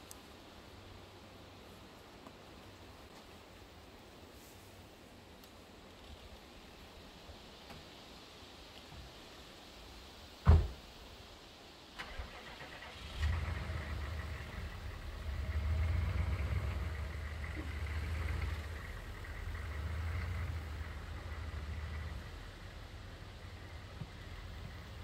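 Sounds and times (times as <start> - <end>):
loud thump: 10.4 - 10.8
pickup truck engine rumbling: 12.9 - 25.0.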